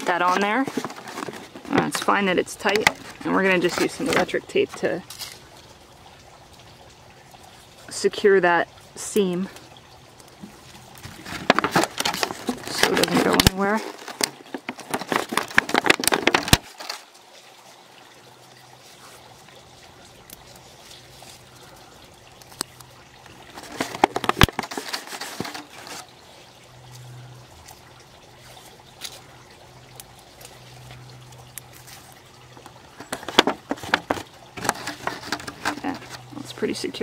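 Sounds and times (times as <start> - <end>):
plastic crackling and rustling: 0.0 - 5.6, 10.4 - 17.5, 22.4 - 26.2, 31.6 - 36.8.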